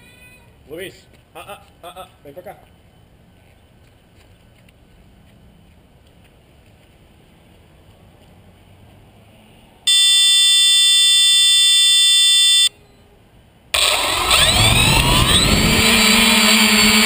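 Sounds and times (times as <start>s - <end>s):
loud steady buzzer beep: 9.9s - 13.0s.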